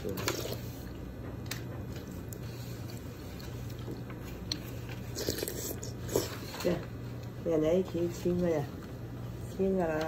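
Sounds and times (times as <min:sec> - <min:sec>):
wet eating mouth sounds: 0:02.2 - 0:06.6.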